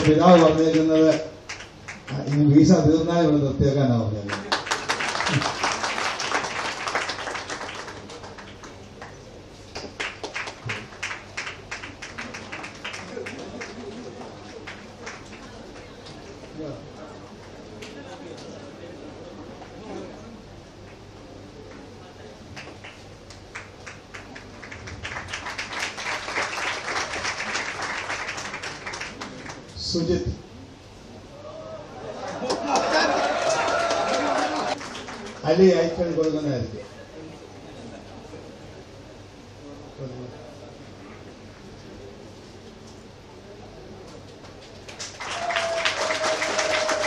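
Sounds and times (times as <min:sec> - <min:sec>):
audience applause: 0:00.0 - 0:02.4, 0:04.3 - 0:09.2, 0:09.8 - 0:16.4, 0:22.6 - 0:29.6, 0:32.1 - 0:35.5, 0:44.8 - 0:47.0
scattered sharp claps or taps: 0:22.6 - 0:26.0.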